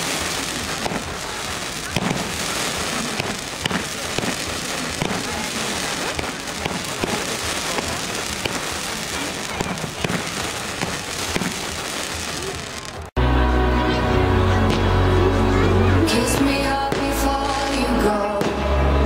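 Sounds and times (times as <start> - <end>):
sparks fizzing: 0.0 - 13.1
fireworks crackling and popping: 0.0 - 13.2, 15.8 - 18.9
music: 13.2 - 19.0.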